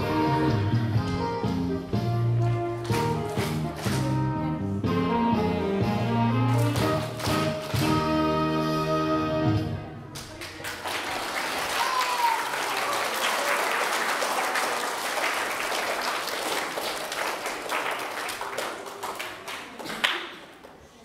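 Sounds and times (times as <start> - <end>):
audience applauding: 10.2 - 20.7.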